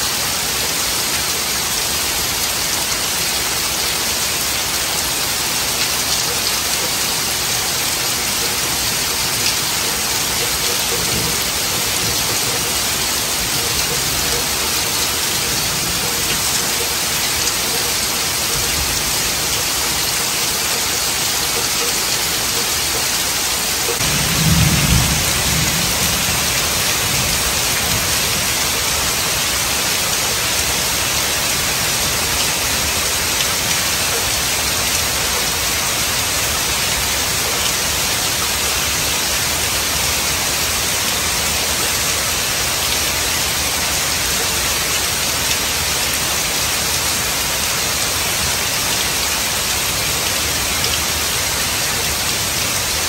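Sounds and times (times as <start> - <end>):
heavy rain on trees: 0.0 - 53.0
low rumble of thunder: 24.0 - 28.1.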